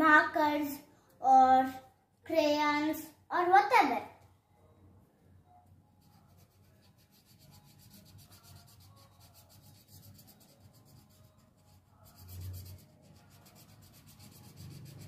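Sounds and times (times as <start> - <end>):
crayon scribbling on paper: 6.0 - 15.0.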